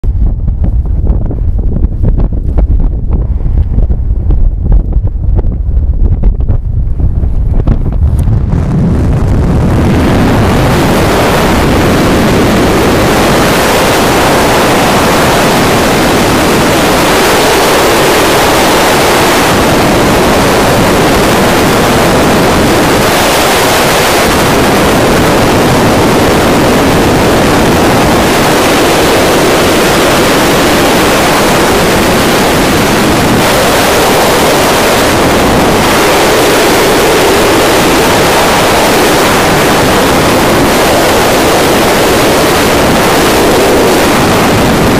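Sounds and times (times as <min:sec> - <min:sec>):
wind rushing on microphone: 0:00.0 - 0:44.9.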